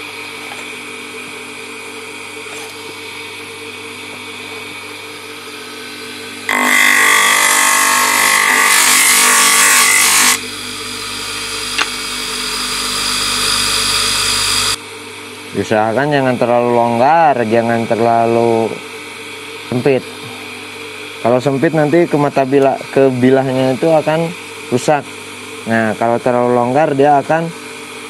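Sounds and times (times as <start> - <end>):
bench grinder motor running: 1.4 - 14.8
wood grinding on wheel: 6.5 - 14.8.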